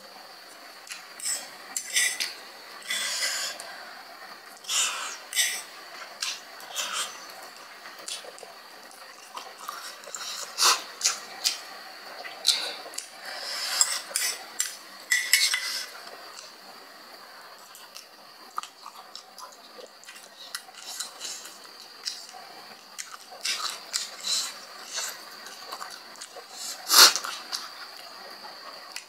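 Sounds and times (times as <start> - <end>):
fork clinking and scraping on plate: 13.7 - 15.9.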